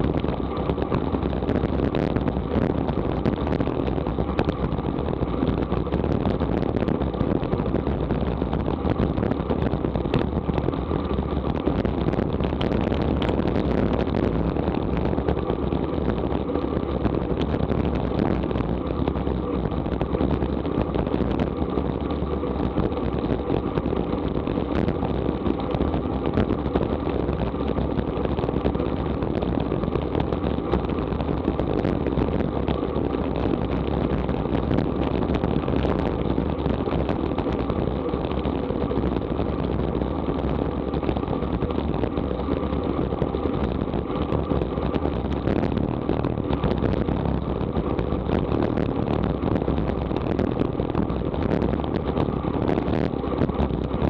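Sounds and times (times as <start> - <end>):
bicycle tyre and road noise: 0.0 - 54.0
wind rush on microphone: 0.0 - 54.0.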